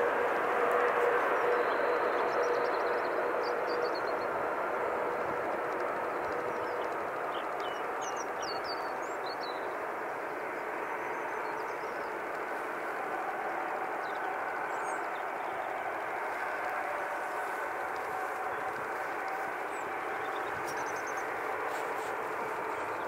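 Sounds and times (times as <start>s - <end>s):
jet engine noise: 0.0s - 23.0s
small birds chirping: 14.0s - 23.0s.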